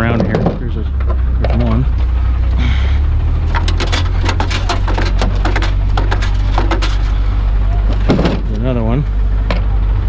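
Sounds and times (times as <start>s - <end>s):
steady low hum: 0.0s - 10.0s
hard objects clattering: 3.4s - 7.3s.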